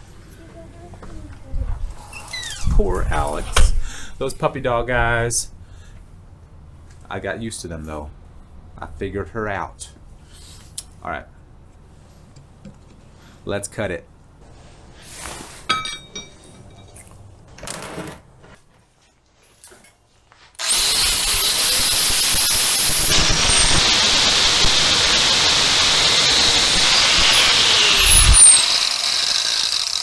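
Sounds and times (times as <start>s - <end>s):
angle grinder cutting steel: 20.6s - 30.0s.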